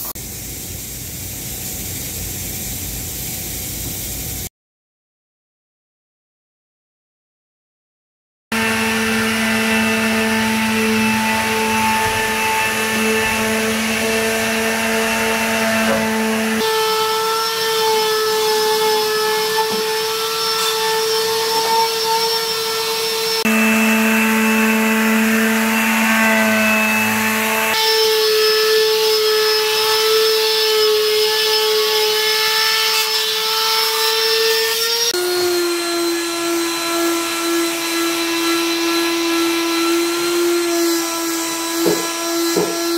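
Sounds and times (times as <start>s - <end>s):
orbital sander humming: 8.5s - 18.8s, 21.0s - 29.0s.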